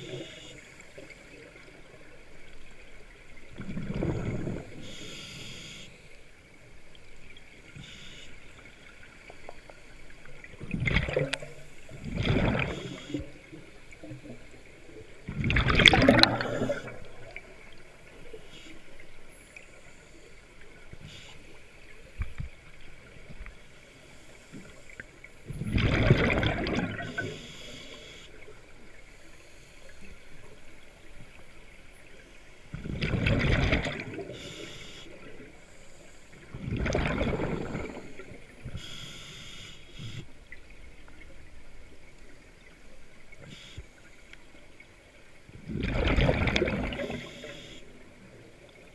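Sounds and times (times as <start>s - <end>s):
underwater breath bubbles: 3.6s - 6.0s, 10.5s - 13.5s, 15.3s - 17.6s, 25.4s - 28.3s, 32.7s - 35.4s, 36.3s - 40.3s, 45.6s - 48.0s.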